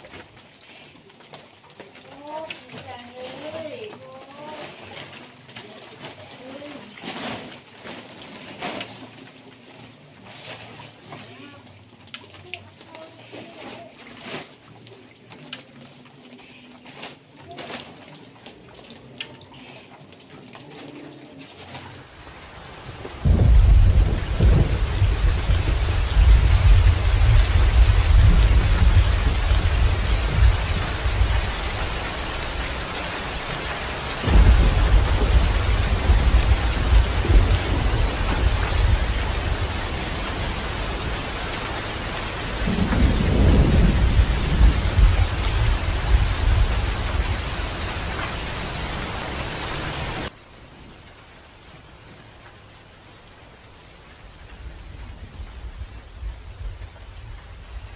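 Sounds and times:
heavy rain: 0.0s - 57.9s
thunder rumbling: 22.1s - 50.3s, 54.6s - 57.9s.

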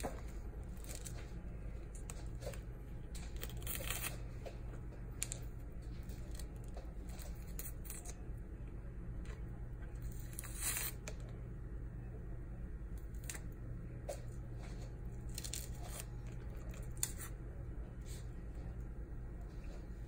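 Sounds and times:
low steady hum: 0.0s - 20.0s
fruit membrane tearing: 1.9s - 4.2s, 6.1s - 8.2s, 13.0s - 13.6s, 15.2s - 17.4s.

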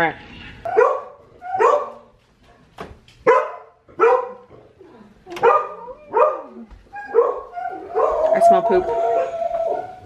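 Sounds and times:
dog barking: 0.7s - 2.1s, 3.2s - 4.5s, 5.4s - 8.2s.

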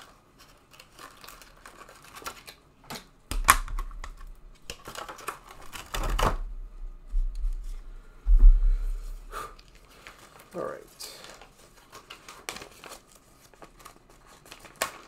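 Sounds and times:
cardboard packaging crinkling: 0.0s - 2.6s, 3.4s - 6.5s, 9.6s - 15.0s.

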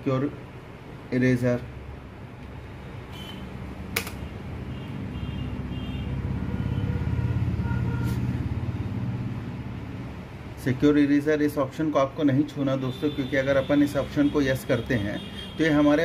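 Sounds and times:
road vehicle passing by: 3.6s - 10.6s
sharp click: 3.9s - 4.3s.

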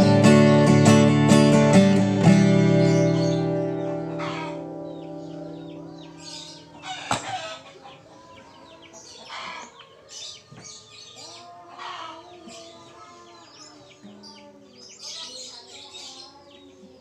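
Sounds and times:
acoustic guitar strings ringing: 0.0s - 7.4s
small birds chirping: 0.0s - 17.0s
hens clucking: 3.7s - 10.1s.

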